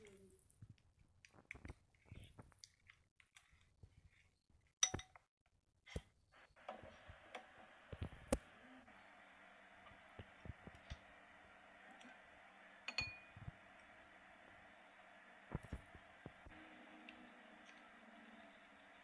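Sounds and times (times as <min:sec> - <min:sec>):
faint clicks and taps: 0:05.9 - 0:08.6
steady low hiss: 0:06.4 - 0:19.0.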